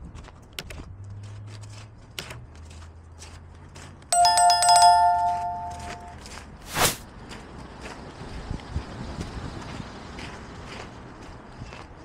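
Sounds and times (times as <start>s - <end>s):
footsteps on pavement: 0.0s - 4.1s, 6.2s - 12.0s.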